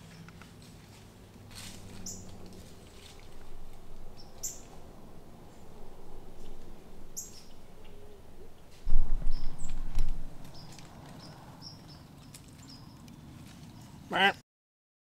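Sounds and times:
low rumbling noise: 1.0s - 12.1s
small birds chirping: 1.6s - 14.1s.

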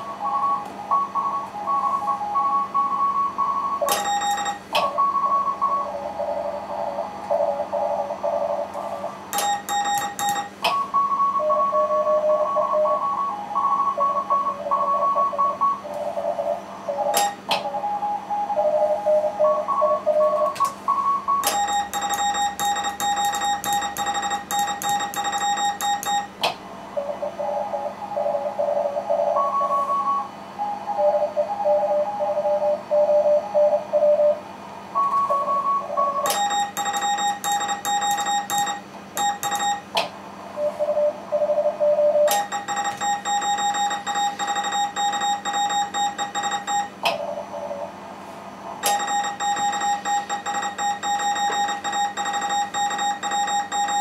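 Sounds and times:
buzzy keyed morse tone: 0.0s - 26.4s, 35.1s - 40.0s, 40.6s - 48.0s, 48.8s - 54.0s
morse code tones from radio: 18.6s - 26.3s, 41.9s - 47.0s, 48.8s - 54.0s.

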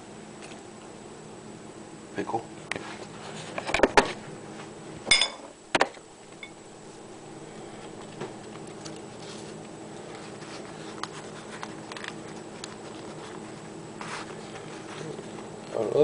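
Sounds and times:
steady low hum: 0.0s - 16.0s
kitchenware clinking: 5.1s - 5.5s.

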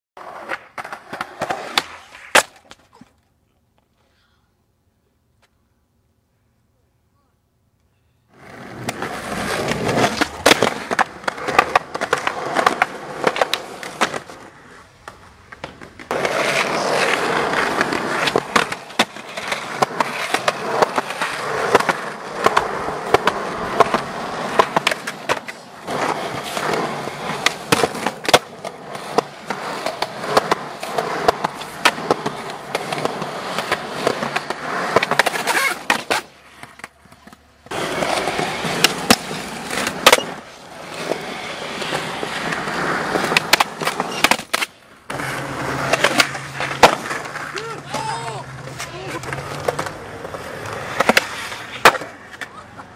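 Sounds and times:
skateboard tail clacking: 0.2s - 3.2s, 8.3s - 52.9s
skateboard wheels rolling on concrete: 0.2s - 4.2s, 4.8s - 6.3s, 7.3s - 52.9s.

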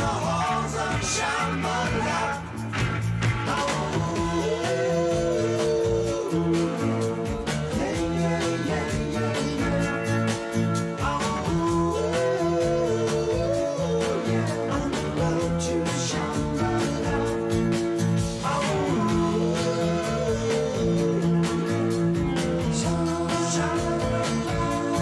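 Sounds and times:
person singing: 0.0s - 2.5s, 3.4s - 25.0s
guitar: 0.0s - 25.0s.

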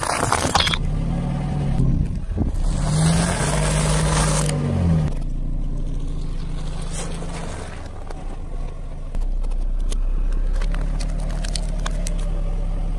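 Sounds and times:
tyre crushing plastic trays: 0.0s - 0.8s
car engine at low speed: 0.0s - 12.9s.

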